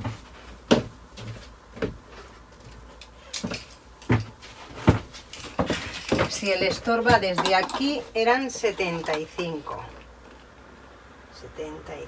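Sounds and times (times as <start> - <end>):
knocks and bumps: 4.1 - 8.1.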